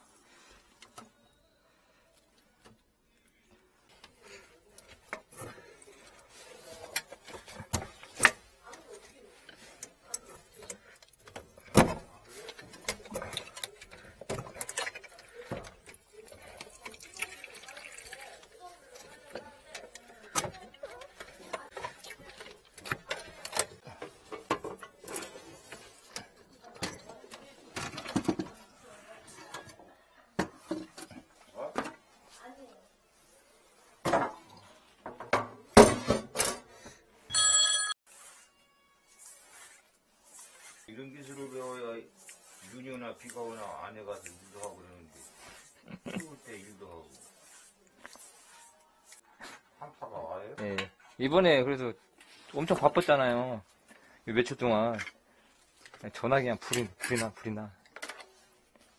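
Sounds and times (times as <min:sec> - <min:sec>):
short ringing tone: 0:37.3 - 0:38.0.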